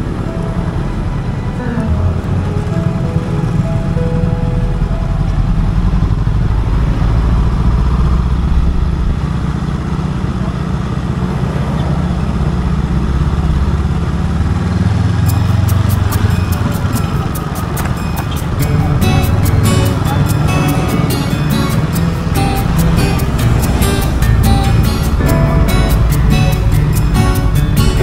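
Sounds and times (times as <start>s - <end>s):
motorcycle engine rumble: 0.0s - 28.0s
road and wind noise: 0.0s - 28.0s
fast even ticking: 15.0s - 28.0s.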